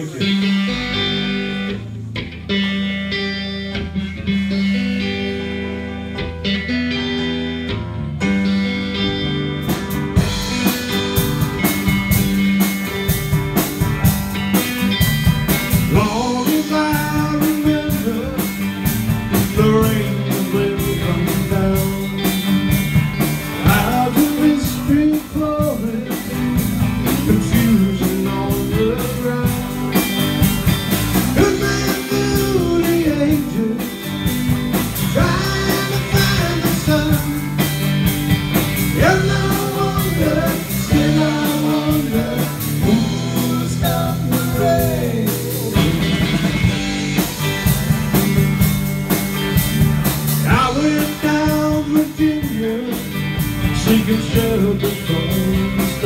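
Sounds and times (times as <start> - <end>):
drum kit: 0.0 - 56.0
electric guitar: 0.0 - 56.0
man singing lead vocal: 15.9 - 18.7, 19.3 - 22.4, 23.6 - 30.0, 31.3 - 34.3, 35.0 - 37.7, 38.9 - 46.1, 50.4 - 56.0.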